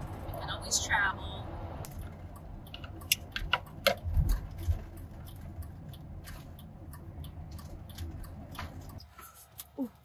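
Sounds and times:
van road and engine rumble: 0.0 - 10.0
light ticks: 1.8 - 9.7
sharp clicks and rattles: 1.8 - 9.8.

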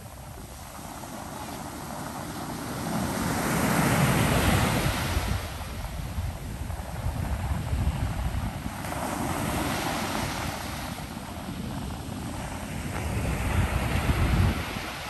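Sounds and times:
ocean surf breaking: 8.1 - 15.0.

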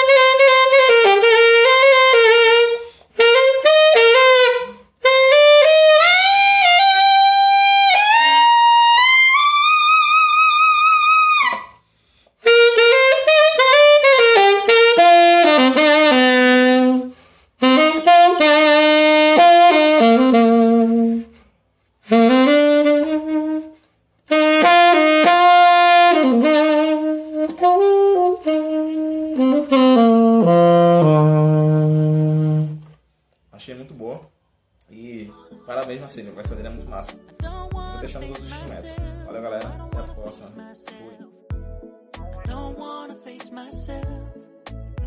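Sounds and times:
solo alto saxophone: 0.0 - 11.8, 12.4 - 33.1.

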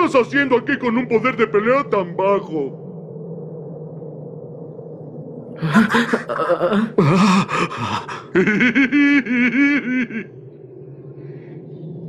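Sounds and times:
deep male voice laughing and grunting: 5.6 - 10.3.

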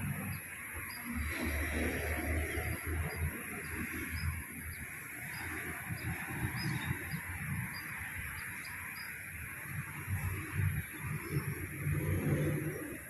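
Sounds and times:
high-pitched drone: 0.0 - 10.2.

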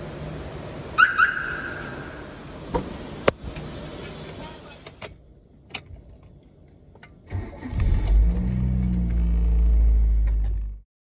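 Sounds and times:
car engine cranking: 7.0 - 10.8
car engine running: 7.3 - 10.8.

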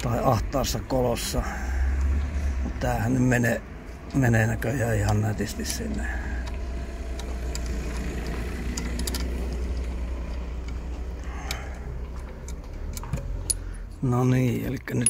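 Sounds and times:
hand tools clicking on metal: 4.0 - 13.8.

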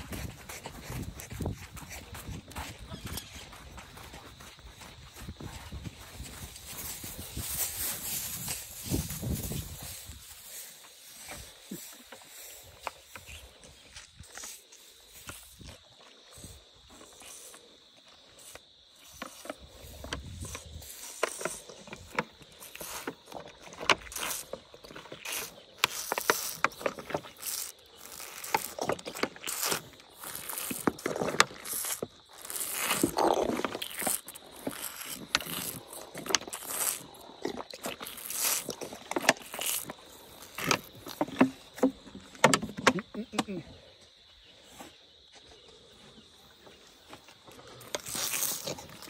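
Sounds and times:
elephant gulping and sucking: 5.2 - 43.6, 47.2 - 49.0
plastic bottle crinkling: 20.1 - 43.2, 47.8 - 49.0.

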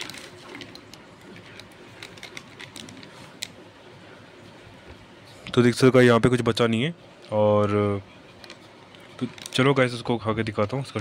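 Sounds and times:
crinkly snack packet: 0.0 - 3.5, 8.4 - 9.9.

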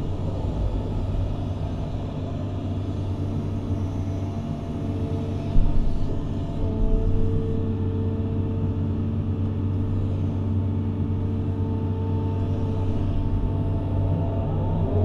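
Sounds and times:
excavator engine drone: 0.0 - 15.0.

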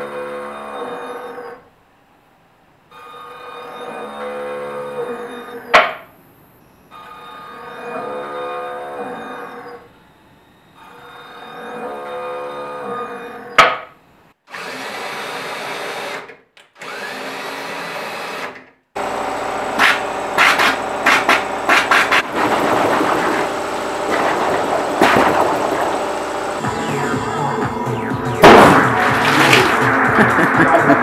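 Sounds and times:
stepper motors whining: 16.8 - 31.0
steady machine noise: 19.0 - 31.0
sharp loud knock: 28.4 - 29.0.

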